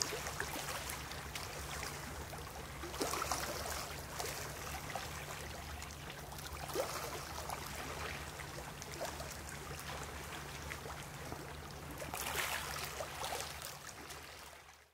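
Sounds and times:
small waves lapping on rocks: 0:00.0 - 0:14.8
little splashes: 0:00.0 - 0:14.9.

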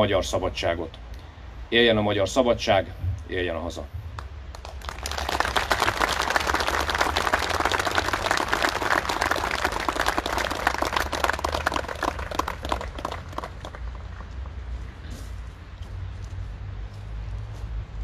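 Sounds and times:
crowd applauding: 0:04.5 - 0:14.7.

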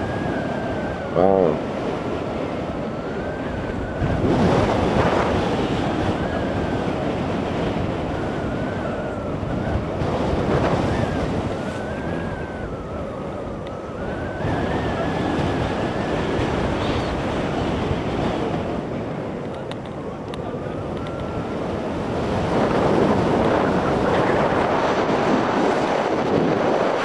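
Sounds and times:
airflow rushing over microphone: 0:00.0 - 0:27.0.

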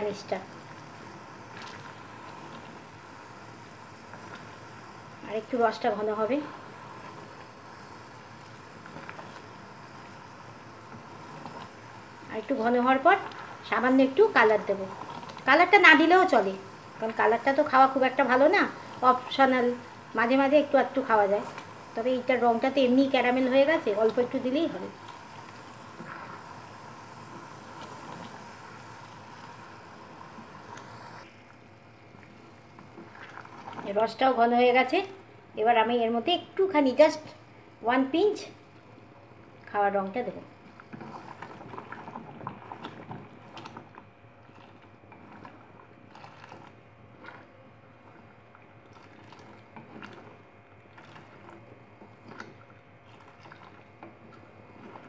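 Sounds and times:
syrup boiling and bubbling: 0:00.0 - 0:55.0.

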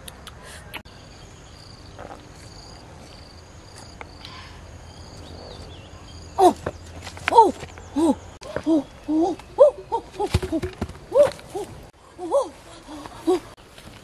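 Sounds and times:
forest ambience: 0:00.0 - 0:14.0
insects chirping: 0:00.8 - 0:11.9.

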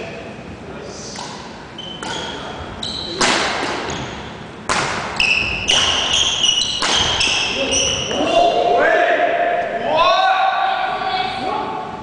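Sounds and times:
racket hitting shuttlecock: 0:03.2 - 0:04.0, 0:04.6 - 0:07.6
shoes squeaking on wooden floor: 0:03.8 - 0:04.4, 0:05.2 - 0:08.4.

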